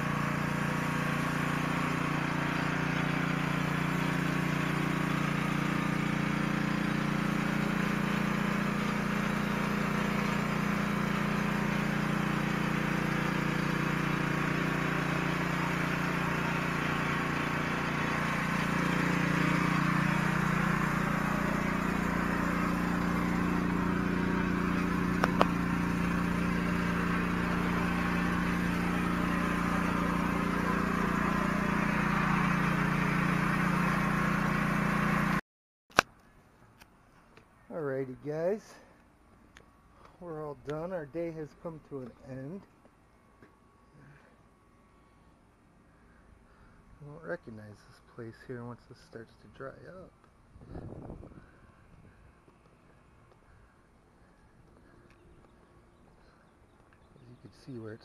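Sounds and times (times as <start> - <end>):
pressure washer engine drone: 0.0 - 35.4, 36.5 - 58.0
water spraying on concrete: 0.0 - 35.4.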